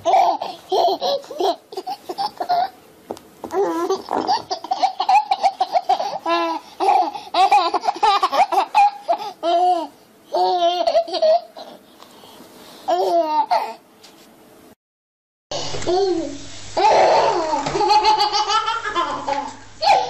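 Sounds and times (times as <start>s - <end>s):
baby laughing and squealing: 0.0s - 2.8s, 3.5s - 11.8s, 15.9s - 20.0s.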